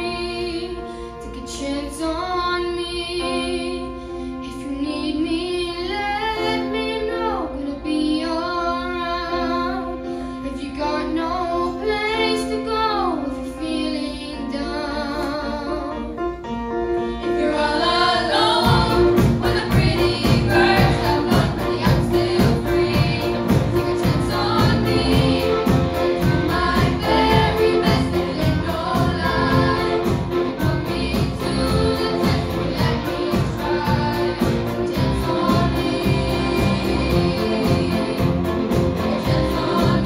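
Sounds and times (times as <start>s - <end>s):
piano and strings accompaniment: 0.0s - 40.0s
choir singing: 17.1s - 40.0s
steady beat: 18.6s - 40.0s.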